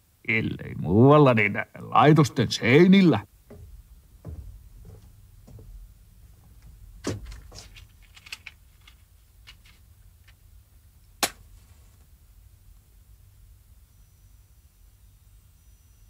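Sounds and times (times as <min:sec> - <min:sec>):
faint low hum: 0:00.0 - 0:16.0
small clicks and knocks: 0:03.4 - 0:10.5.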